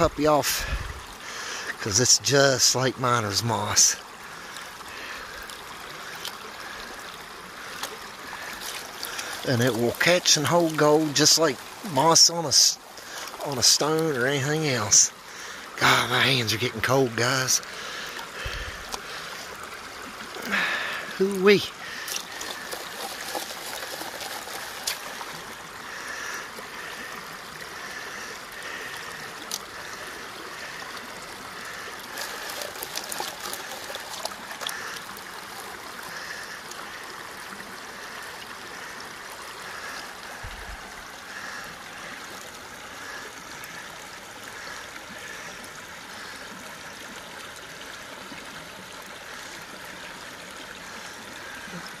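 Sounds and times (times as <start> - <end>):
creek water running: 0.0 - 52.0
water sloshing over a pan: 4.3 - 13.8, 17.6 - 37.2
short sharp clicks and splashes: 7.6 - 10.0, 21.8 - 25.4, 31.8 - 36.8.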